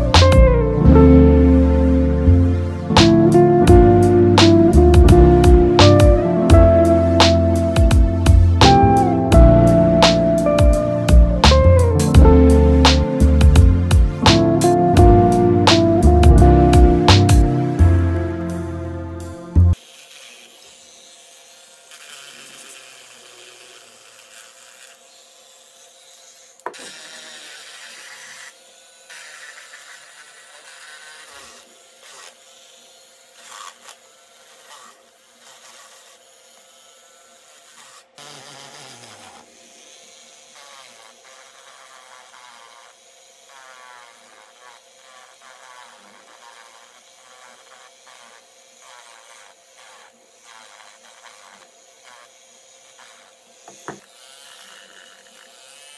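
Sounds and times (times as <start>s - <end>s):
rotary tool whining: 11.8s - 55.9s
bit grinding clay: 37.5s - 55.9s.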